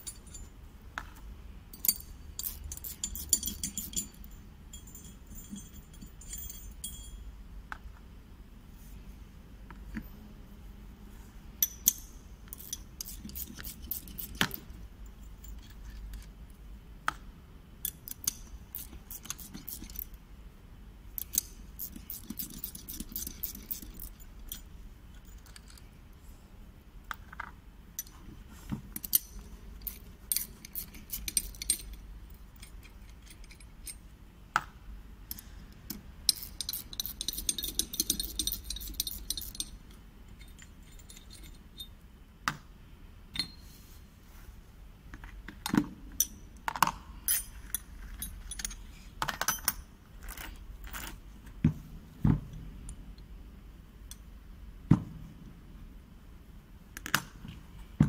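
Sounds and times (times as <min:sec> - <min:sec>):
metal parts clinking: 0:00.0 - 0:00.6, 0:01.7 - 0:07.2, 0:11.6 - 0:16.3, 0:17.8 - 0:20.2, 0:21.2 - 0:25.9, 0:28.9 - 0:34.1, 0:35.3 - 0:42.0, 0:46.2 - 0:51.2.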